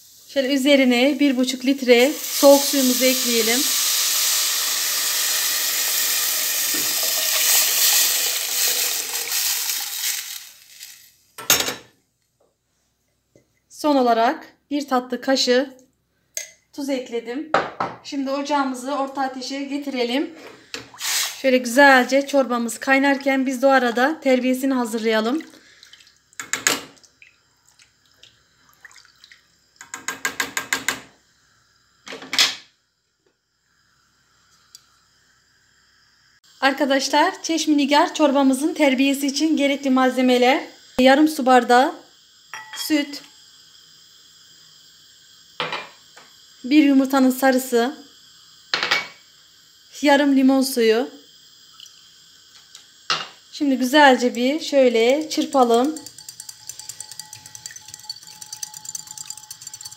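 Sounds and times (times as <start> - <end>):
water pouring into a metal pot: 0.2 - 11.2, 25.0 - 29.9, 53.4 - 59.9
spatula swishing liquid in a pot: 54.0 - 59.9.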